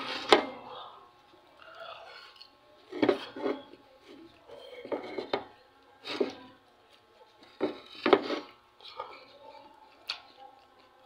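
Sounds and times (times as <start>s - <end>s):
person eating with mouth noises: 1.6s - 2.5s.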